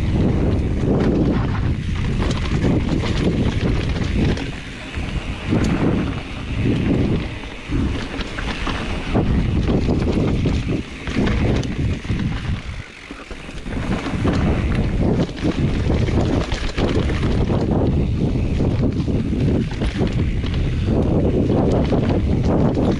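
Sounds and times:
bike rattling over rocks: 0.0 - 22.9
tyres rolling over dirt: 0.0 - 22.9
wind rushing over microphone: 0.0 - 22.9.

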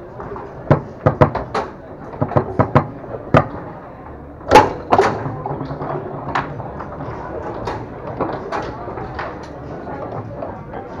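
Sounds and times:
foosball ball and rods knocking: 0.6 - 3.7, 4.5 - 9.4.

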